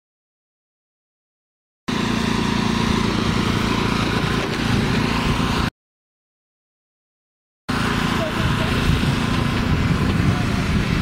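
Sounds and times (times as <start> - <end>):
fire engine idling: 7.7 - 11.0.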